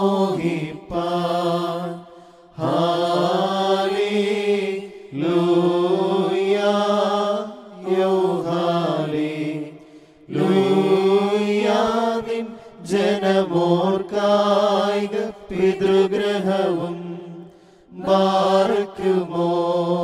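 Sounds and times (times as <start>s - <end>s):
slow liturgical chant: 0.0s - 20.0s
singer breathing: 2.0s - 2.6s, 9.7s - 10.3s, 12.5s - 12.8s, 17.4s - 18.0s.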